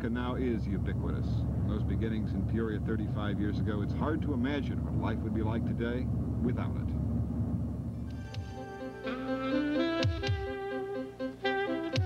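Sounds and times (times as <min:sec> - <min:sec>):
held chords over pulse: 0:06.0 - 0:12.0.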